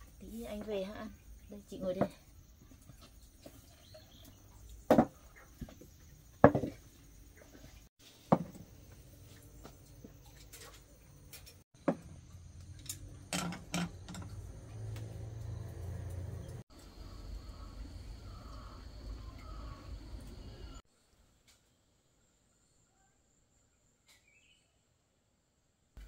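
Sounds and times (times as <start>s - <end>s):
tableware knocking on wooden table: 4.9s - 5.1s, 6.4s - 6.8s, 8.3s - 8.6s, 11.8s - 12.1s.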